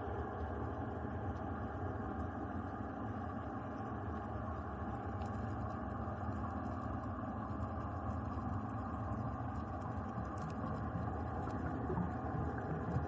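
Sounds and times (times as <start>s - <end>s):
faint hums: 0.0s - 13.0s
underwater rumble: 0.0s - 13.0s
faint clicks: 5.0s - 13.0s.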